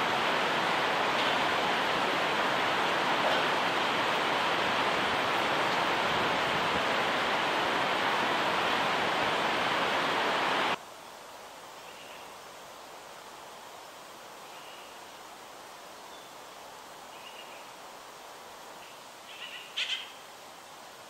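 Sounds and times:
mountain river rushing: 0.0s - 21.0s
faint high bird chirps: 14.5s - 15.0s, 17.1s - 17.7s, 18.8s - 20.2s.

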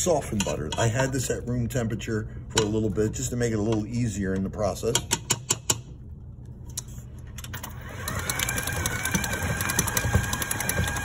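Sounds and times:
stand mixer motor whining: 7.7s - 11.0s.

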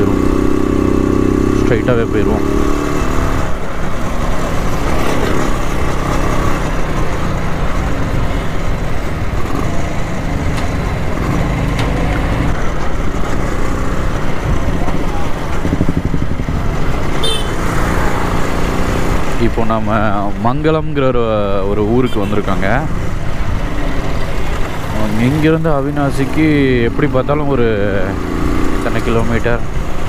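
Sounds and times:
motorcycle engine running: 0.0s - 19.4s.

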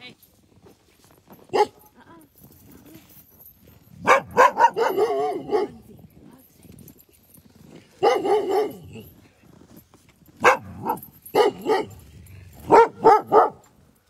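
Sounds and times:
dogs barking: 1.5s - 1.9s, 4.0s - 5.9s, 8.0s - 9.1s, 10.4s - 13.8s.

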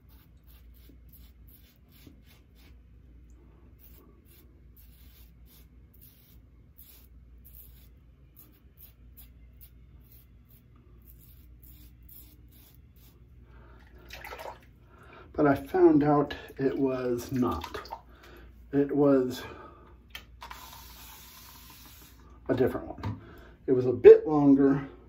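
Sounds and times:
razor scraping stubble: 0.0s - 2.8s, 3.8s - 13.2s
running water: 13.9s - 14.7s, 16.6s - 18.1s.

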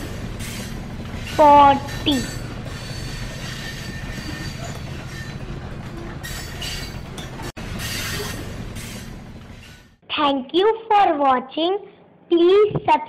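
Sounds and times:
train rolling along rails: 0.0s - 10.0s.

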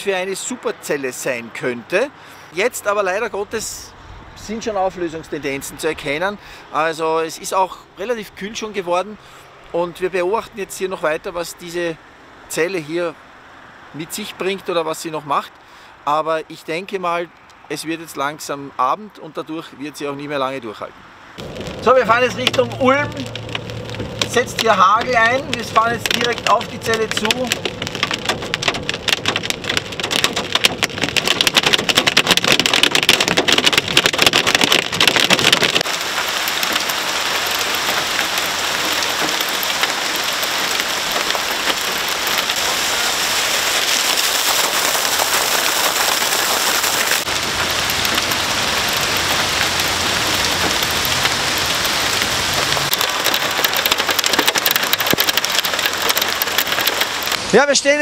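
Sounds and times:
hail rattling on car roof: 21.4s - 57.5s
heavy rain and pouring water: 21.4s - 58.0s.

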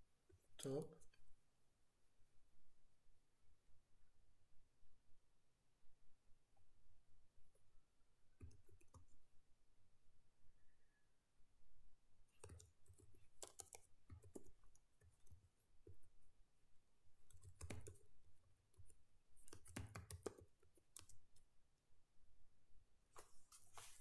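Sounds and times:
faint keyboard typing: 8.3s - 9.3s, 12.2s - 16.2s, 17.1s - 21.5s.

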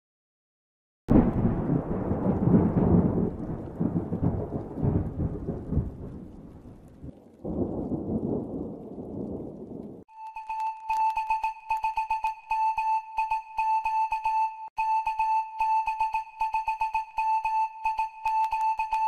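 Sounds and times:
thunder crash and rumble: 1.1s - 10.1s.

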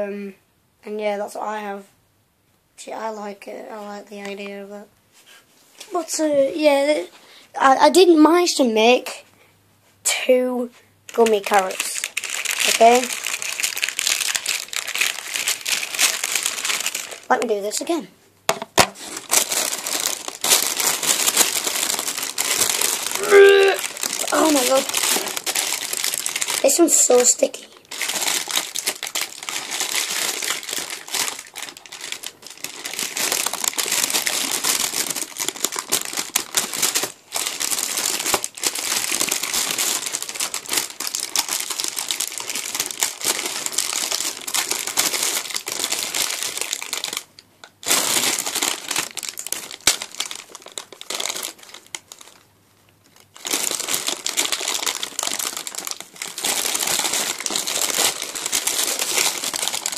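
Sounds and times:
paper crinkling: 11.1s - 17.9s, 18.8s - 52.5s, 53.1s - 59.9s.

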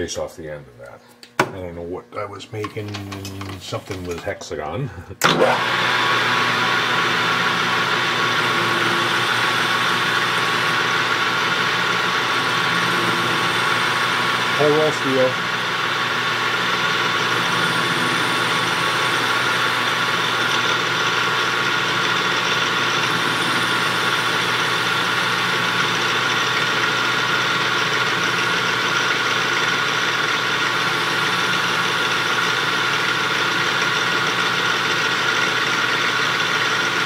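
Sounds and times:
metal lathe humming and whining: 5.2s - 37.0s.

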